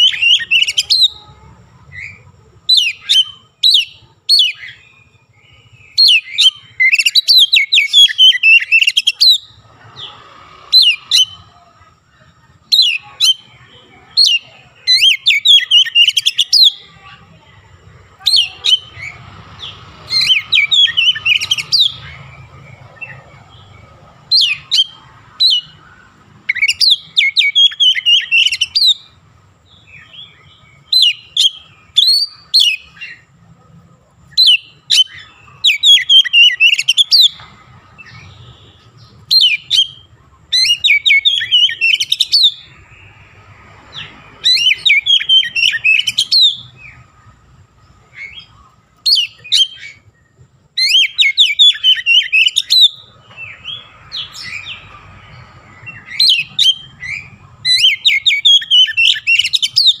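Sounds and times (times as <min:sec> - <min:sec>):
bird singing whistled phrases: 0:00.0 - 0:01.3, 0:01.9 - 0:09.6, 0:12.6 - 0:16.9, 0:18.2 - 0:23.6, 0:26.4 - 0:29.2, 0:29.8 - 0:33.3, 0:34.4 - 0:37.4, 0:38.0 - 0:42.8, 0:44.0 - 0:47.0, 0:49.1 - 0:50.1, 0:50.8 - 0:54.9, 0:55.8 - 1:00.0.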